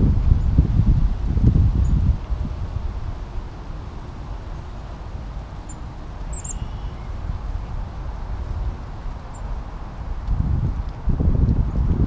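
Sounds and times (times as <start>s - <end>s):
wind rumble on microphone: 0.0s - 12.0s
faint bird chirps: 5.7s - 7.2s.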